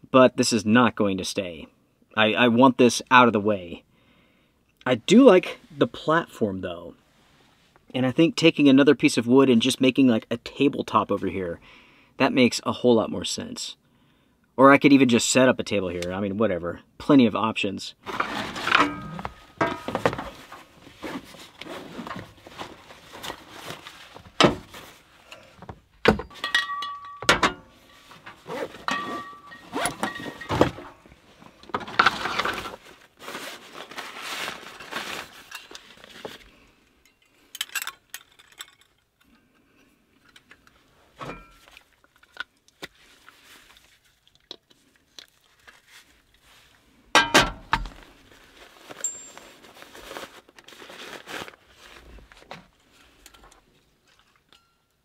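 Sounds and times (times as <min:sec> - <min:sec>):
nylon sacks rustling: 0:18.0 - 0:25.2, 0:27.8 - 0:36.4, 0:47.9 - 0:52.7
metal camping stove parts clinking: 0:18.6 - 0:20.2, 0:26.1 - 0:30.7, 0:37.0 - 0:39.2, 0:40.2 - 0:42.4, 0:47.2 - 0:47.6, 0:49.0 - 0:49.6, 0:53.2 - 0:55.0.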